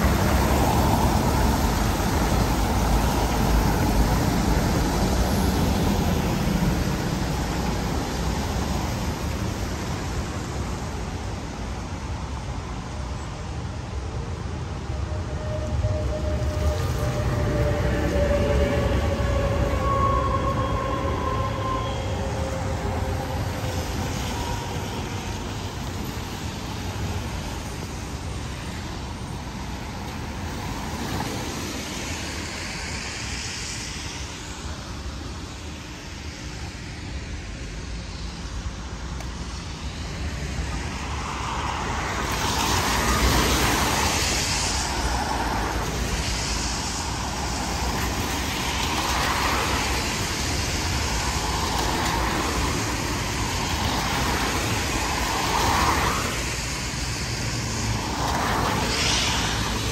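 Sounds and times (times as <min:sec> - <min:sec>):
street traffic rumbling: 0:00.0 - 0:59.9
vehicle whine: 0:00.0 - 0:59.9
vehicle passing with tyre noise: 0:14.6 - 0:36.7, 0:38.0 - 0:59.9.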